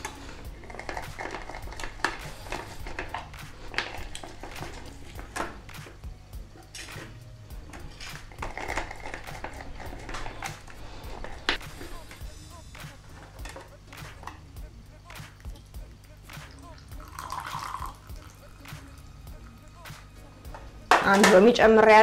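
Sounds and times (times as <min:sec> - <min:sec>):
dishes knocking and clinking: 0:20.5 - 0:21.5.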